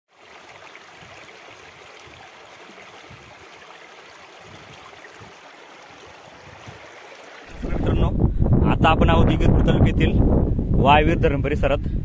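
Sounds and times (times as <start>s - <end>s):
stream flowing over rocks: 0.1s - 8.0s.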